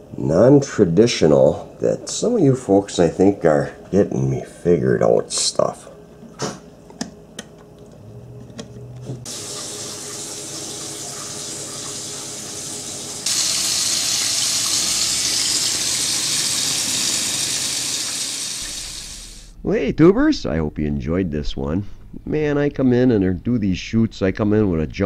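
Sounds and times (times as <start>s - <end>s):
water running from a tap: 9.3s - 19.5s
low hum: 18.6s - 25.0s.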